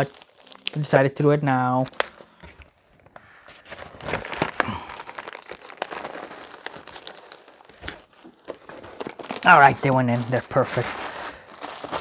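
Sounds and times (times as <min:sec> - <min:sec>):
packaging crinkling and rustling: 0:00.0 - 0:12.0.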